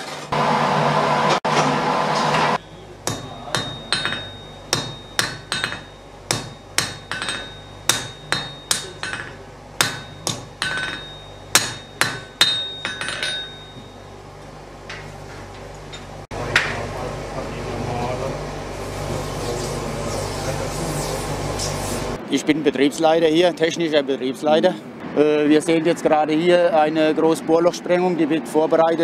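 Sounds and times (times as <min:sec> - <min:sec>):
hammer ringing on chisel: 0:02.6 - 0:14.2.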